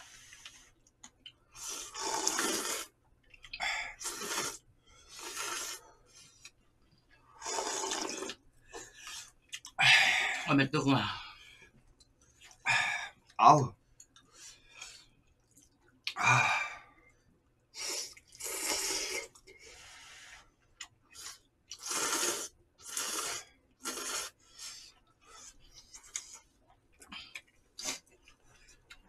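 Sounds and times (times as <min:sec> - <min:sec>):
noodles being slurped: 0:01.6 - 0:06.5, 0:07.4 - 0:09.8, 0:17.8 - 0:19.5, 0:21.1 - 0:26.5, 0:27.8 - 0:28.2.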